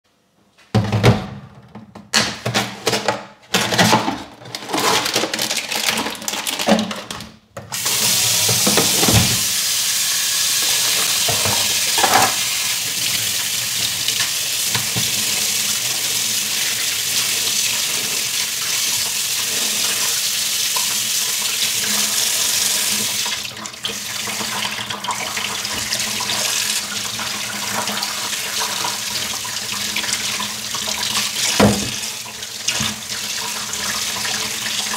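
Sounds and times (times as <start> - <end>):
tap water running into steel sink: 7.7 - 34.9.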